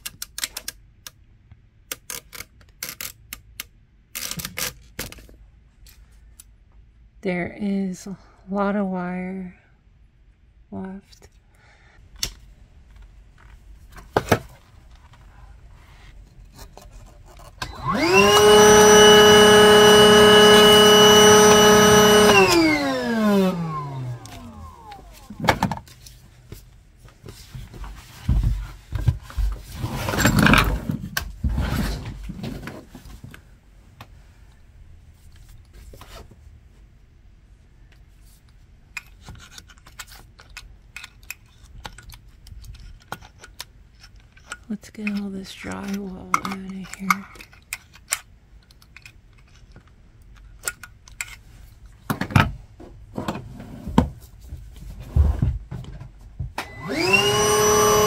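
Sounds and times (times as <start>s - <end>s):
power tool motor whining: 17.6s - 25.4s, 56.6s - 58.0s.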